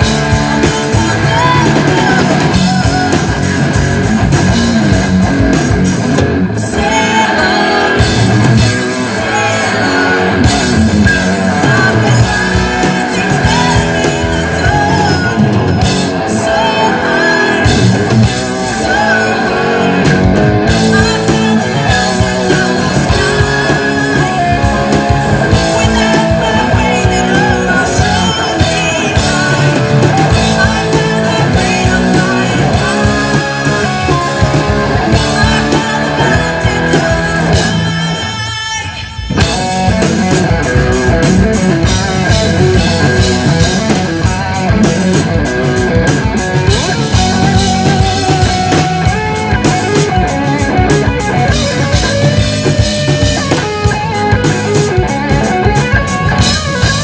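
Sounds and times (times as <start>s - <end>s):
woman singing: 0.0s - 3.5s, 6.6s - 39.6s
heavy metal band playing: 0.0s - 57.0s.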